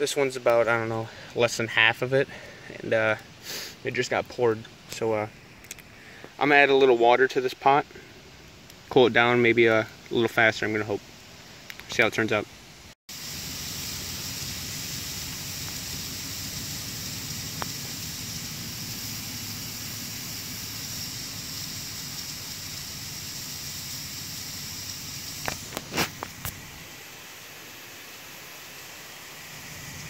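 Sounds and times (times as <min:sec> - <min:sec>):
water sizzling on hot cans: 0:03.4 - 0:04.3, 0:13.1 - 0:30.0.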